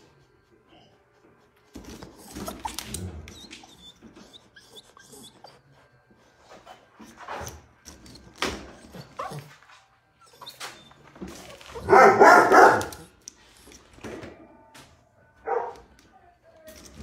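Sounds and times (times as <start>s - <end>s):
dog barking: 11.8s - 13.1s, 15.4s - 15.9s.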